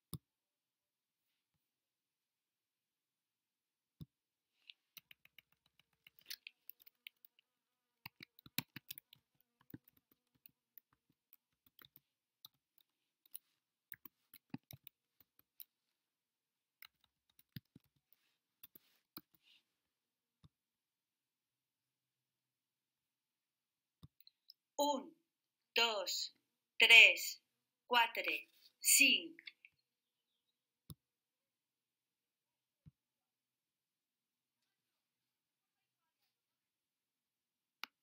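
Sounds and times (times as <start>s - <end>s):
keyboard typing: 4.6s - 15.8s, 16.6s - 19.4s.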